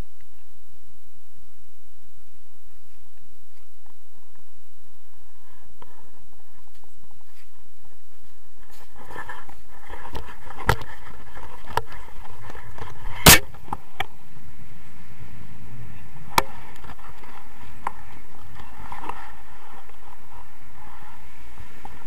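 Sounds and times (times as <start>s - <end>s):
wind rushing over microphone: 0.0s - 22.0s.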